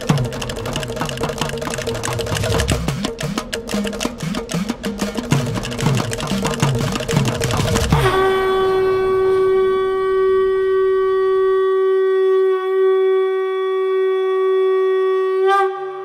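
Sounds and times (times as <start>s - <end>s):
conch shell blown: 6.8s - 16.0s.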